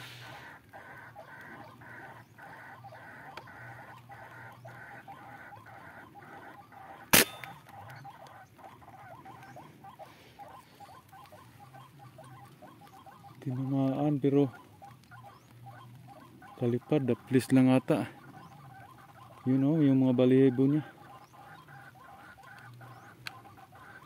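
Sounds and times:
repeated animal calls: 0.0s - 24.0s
rifle shot: 7.1s - 7.6s.

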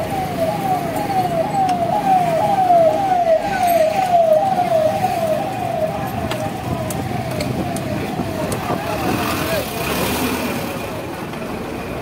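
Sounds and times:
siren yelping: 0.0s - 9.6s
street traffic noise: 0.0s - 12.0s.

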